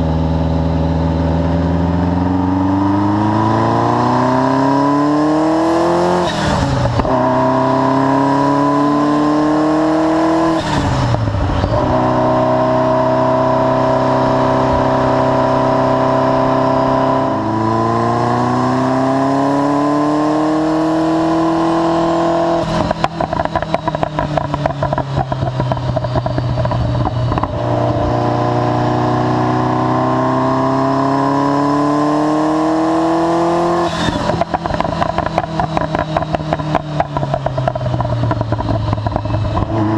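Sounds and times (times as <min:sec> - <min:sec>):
car engine accelerating through gears: 0:00.0 - 0:39.9
exhaust crackling: 0:33.8 - 0:39.9.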